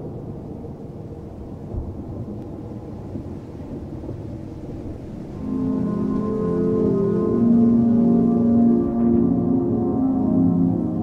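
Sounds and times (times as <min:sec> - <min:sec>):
thunder rumbling: 0:00.0 - 0:11.0
ambient music tones: 0:04.8 - 0:11.0.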